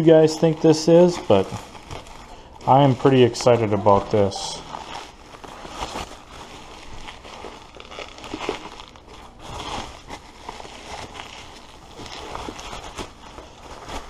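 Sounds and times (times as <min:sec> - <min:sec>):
bubble wrap crinkling: 0:00.0 - 0:14.0.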